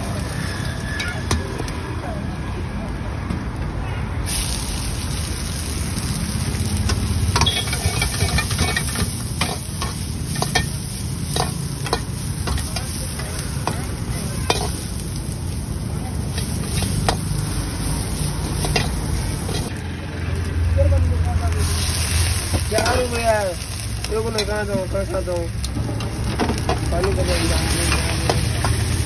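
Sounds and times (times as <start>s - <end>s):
vegetables sizzling: 4.3s - 29.0s
ladle scraping and clanking on wok: 6.7s - 15.1s, 16.2s - 19.7s, 24.2s - 29.0s.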